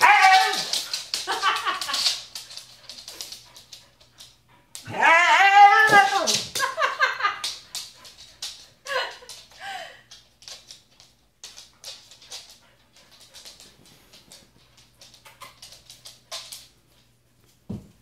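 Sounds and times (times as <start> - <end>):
dog whine: 0.0 - 0.8, 4.8 - 6.3
dog claws clicking on floor: 0.0 - 18.0.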